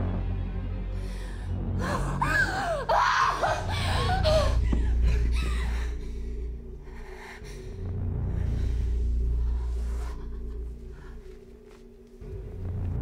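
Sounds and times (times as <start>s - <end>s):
low music drone: 0.0s - 13.0s
woman breathing raggedly: 0.9s - 12.0s
woman gasping and crying out: 1.7s - 6.4s.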